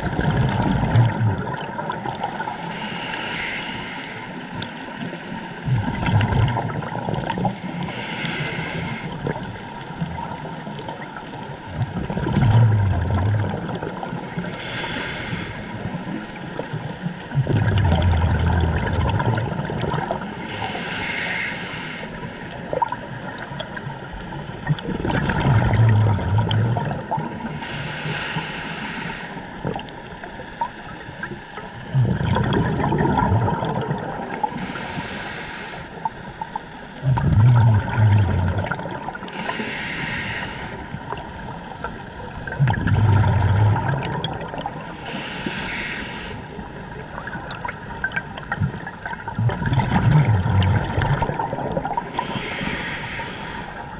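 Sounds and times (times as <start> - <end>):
exhaled bubbles rushing: 0.0 - 2.4, 5.6 - 7.6, 11.6 - 14.2, 16.4 - 20.4, 24.4 - 27.4, 31.9 - 34.5, 37.0 - 39.2, 42.3 - 44.8, 46.9 - 52.4
regulator hissing inhale: 2.4 - 5.4, 7.5 - 9.4, 14.2 - 16.4, 20.2 - 22.7, 27.4 - 31.8, 34.3 - 37.0, 39.1 - 42.1, 44.8 - 47.0, 52.0 - 53.9.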